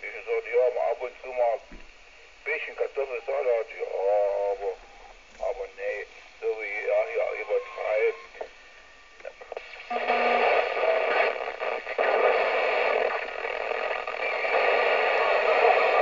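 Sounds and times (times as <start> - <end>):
radio static hiss: 0.0 - 16.0
radio clicks: 9.2 - 16.0.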